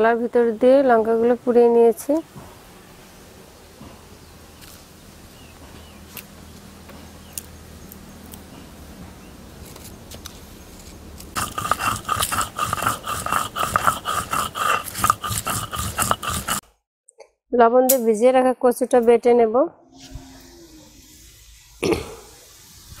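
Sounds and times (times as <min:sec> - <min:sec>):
stone roller scraping on stone: 0:10.8 - 0:16.6.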